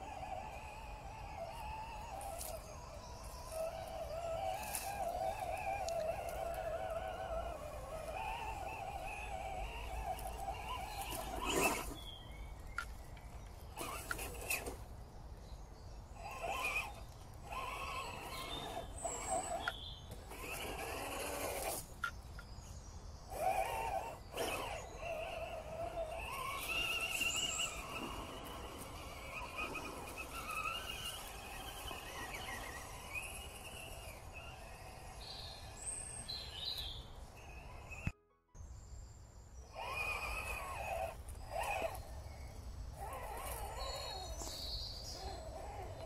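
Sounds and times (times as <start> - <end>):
electric motor whining: 0.0 - 14.9, 16.1 - 38.2, 39.7 - 46.0.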